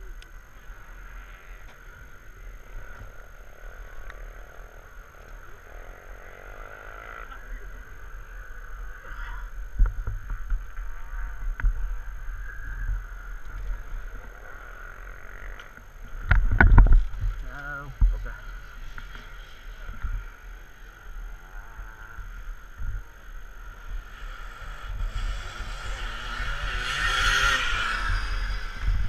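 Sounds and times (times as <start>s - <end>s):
motorcycle engine: 0.0s - 29.0s
wind buffeting microphone: 16.1s - 18.8s.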